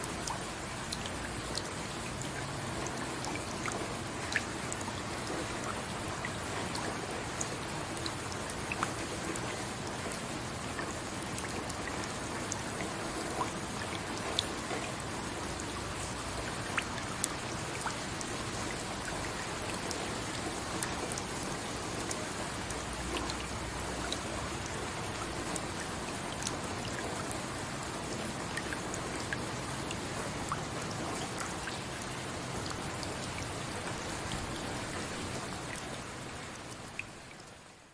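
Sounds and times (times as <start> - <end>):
raindrops ticking: 0.0 - 37.9
steady rain: 0.0 - 37.9.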